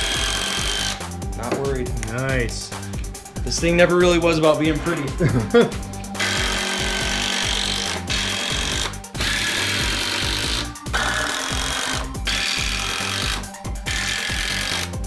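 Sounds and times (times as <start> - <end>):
impact driver driving screws: 6.2 - 15.0.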